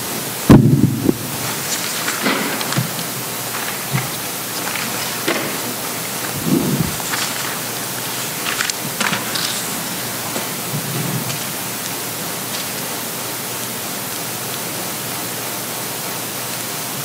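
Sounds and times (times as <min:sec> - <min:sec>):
microphone system hiss: 0:00.0 - 0:17.0
papers rustling: 0:00.9 - 0:13.9.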